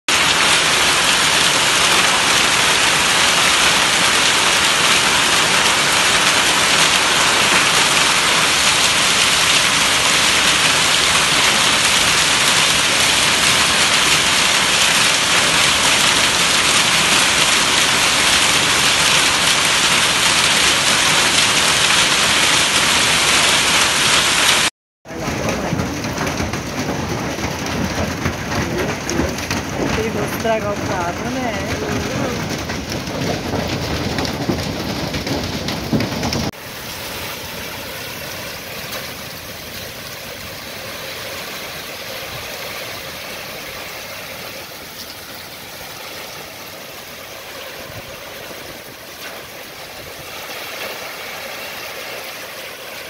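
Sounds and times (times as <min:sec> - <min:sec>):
rain heard from inside a car: 0:00.1 - 0:36.6
hail and heavy rain: 0:00.1 - 0:53.0.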